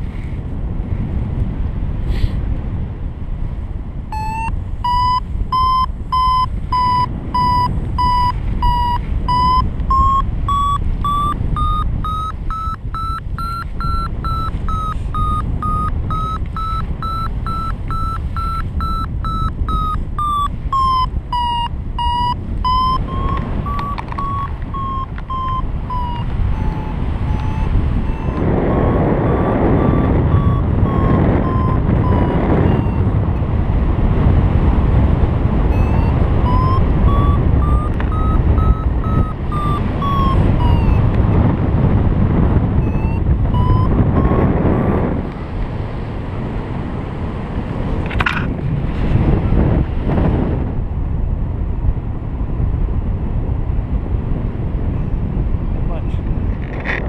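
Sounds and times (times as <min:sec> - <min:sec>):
wind noise on microphone: 0:00.0 - 0:57.0
variometer beeping in rapid pulses: 0:04.1 - 0:33.3, 0:35.6 - 0:41.5, 0:42.8 - 0:45.3.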